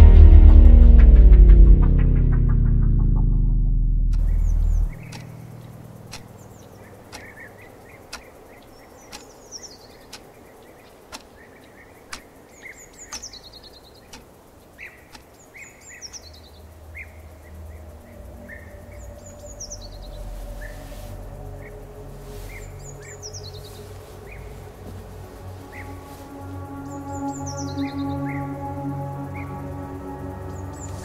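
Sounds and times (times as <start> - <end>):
low hum: 0.0 - 11.4, 12.1 - 31.0
birds chirping: 4.2 - 31.0
wall clock ticking: 5.1 - 5.3, 6.0 - 6.4, 7.1 - 8.5, 9.1 - 9.4, 10.0 - 11.5, 12.1 - 12.4, 13.0 - 13.4, 14.1 - 15.4.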